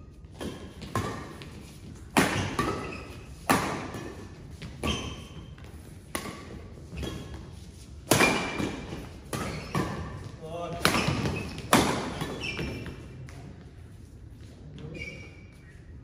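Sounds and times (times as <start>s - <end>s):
badminton racket hitting shuttlecock: 0.3s - 5.4s, 6.0s - 7.4s, 8.0s - 12.8s.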